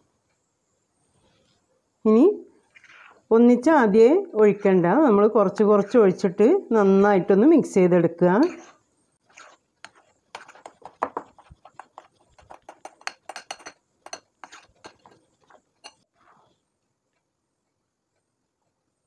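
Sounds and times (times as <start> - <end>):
metal spoon scraping glass bowl: 8.4 - 16.4.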